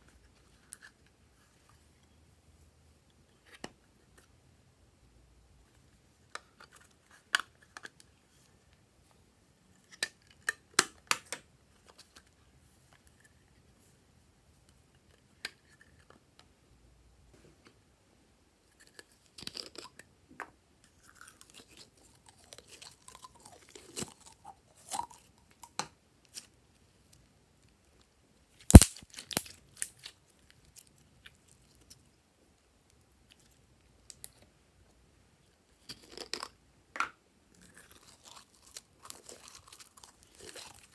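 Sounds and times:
sharp loud plastic snap: 0:28.7 - 0:29.0.

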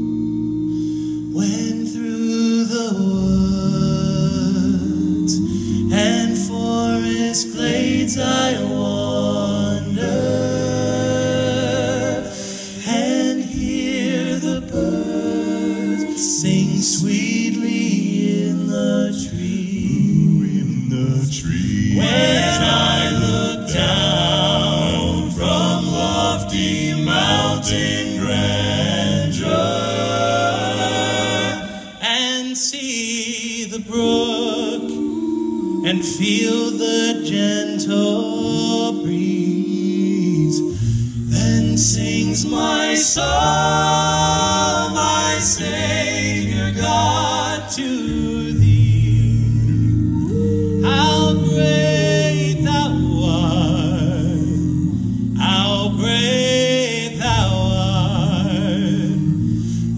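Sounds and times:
male group singing close harmonies: 0:00.0 - 0:59.9
deep bass voice: 0:45.4 - 0:59.9.

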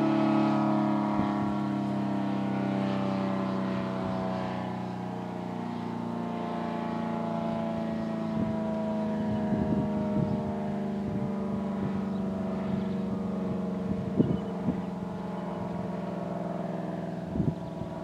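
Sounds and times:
rotating warning siren: 0:00.0 - 0:18.0.

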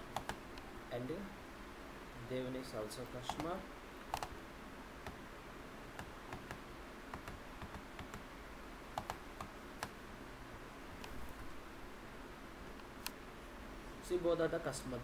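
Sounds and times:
faint room noise: 0:00.0 - 0:15.0
computer mouse and key clicks: 0:00.1 - 0:00.7, 0:03.2 - 0:04.4, 0:06.0 - 0:08.2, 0:09.0 - 0:10.0.

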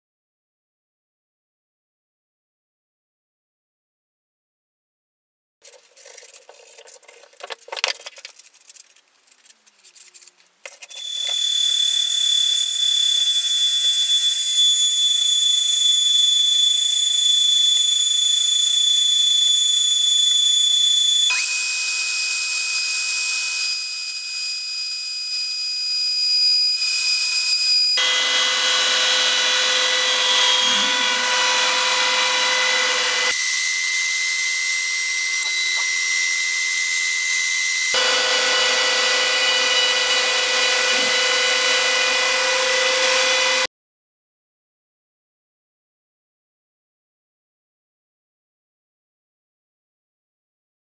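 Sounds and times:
hand sanding scratching: 0:05.6 - 0:11.0
wood router whining: 0:10.9 - 0:43.7.

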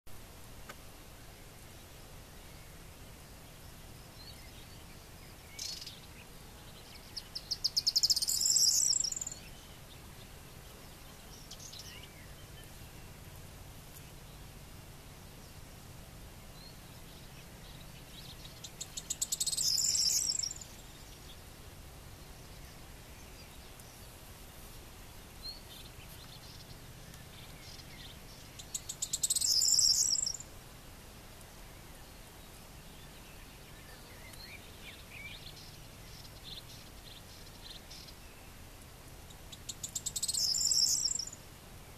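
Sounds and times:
faint bird chirps: 0:01.2 - 0:13.3, 0:16.4 - 0:21.5, 0:25.4 - 0:30.5, 0:31.6 - 0:41.9
bird song with jangling trill: 0:07.9 - 0:09.4, 0:19.1 - 0:20.6, 0:28.7 - 0:30.4, 0:40.1 - 0:41.4.

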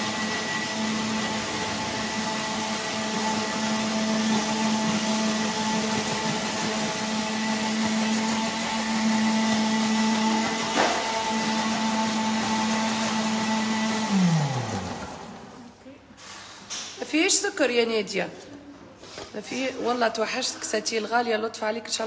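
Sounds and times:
blender running: 0:00.0 - 0:15.8.

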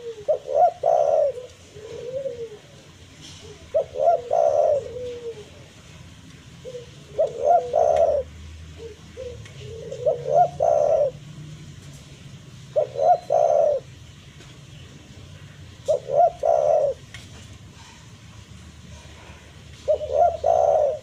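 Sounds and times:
dove cooing: 0:00.0 - 0:05.9, 0:06.6 - 0:11.4, 0:12.6 - 0:14.0, 0:15.7 - 0:17.1, 0:18.9 - 0:21.0.

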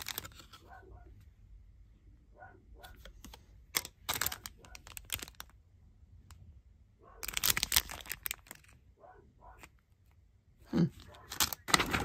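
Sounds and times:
plastic packaging crinkling: 0:00.0 - 0:00.6, 0:03.8 - 0:05.6, 0:07.2 - 0:08.8, 0:11.0 - 0:12.0.

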